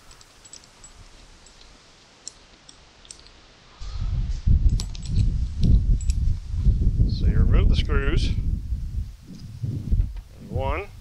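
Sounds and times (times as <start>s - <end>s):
low rumble: 3.8s - 10.6s.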